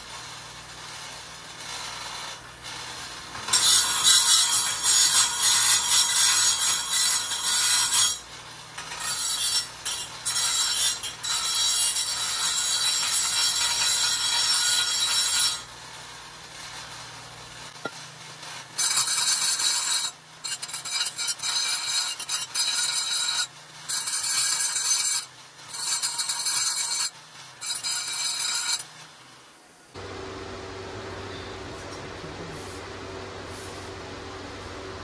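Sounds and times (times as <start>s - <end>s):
grinder cutting steel pipe: 0.0s - 29.2s.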